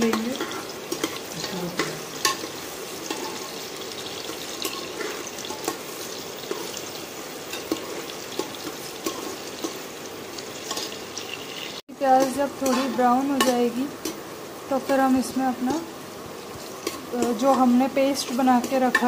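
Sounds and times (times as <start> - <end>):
onions sizzling in hot oil: 0.0 - 19.0
metal spatula scraping pot: 10.6 - 14.2.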